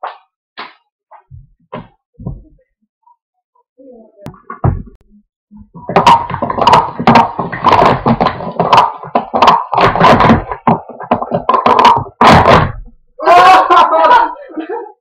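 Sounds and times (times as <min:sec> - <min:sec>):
plastic cups clacking: 0:05.8 - 0:12.9.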